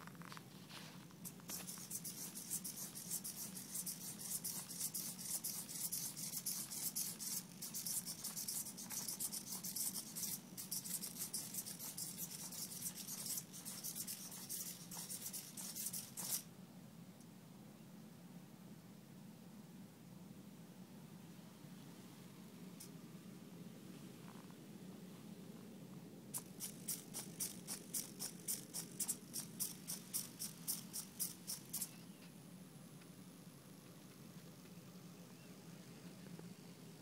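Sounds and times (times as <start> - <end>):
robot walking on carpet: 0.0 - 16.4, 26.3 - 32.0.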